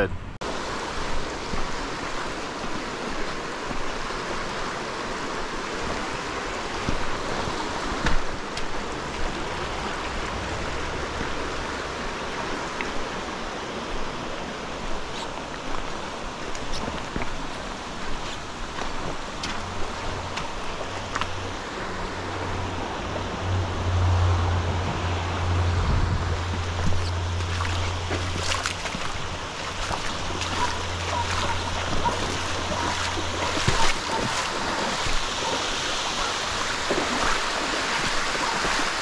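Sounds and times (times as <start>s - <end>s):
creek water rushing over rock: 0.4s - 39.0s
footsteps on wet rock: 7.9s - 10.0s, 14.9s - 21.4s, 26.5s - 38.9s
low steady drone: 9.0s - 13.5s, 21.4s - 34.2s.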